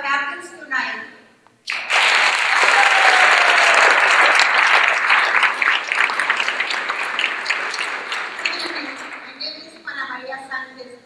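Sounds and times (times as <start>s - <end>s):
audience applauding: 1.7s - 9.5s.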